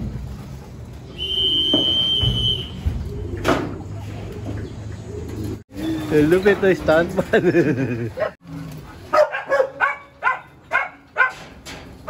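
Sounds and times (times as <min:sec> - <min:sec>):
high whistle: 0:01.1 - 0:02.8
pigeons cooing: 0:02.2 - 0:06.8.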